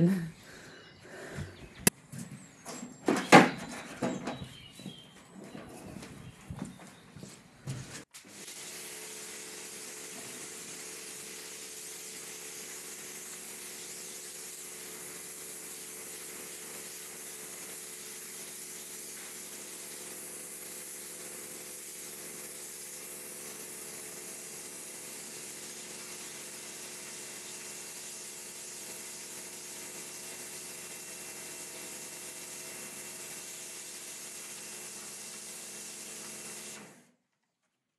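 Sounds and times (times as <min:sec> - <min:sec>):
water jet hissing on stone: 0:08.2 - 0:36.8
pressure washer pump hum: 0:08.2 - 0:37.0.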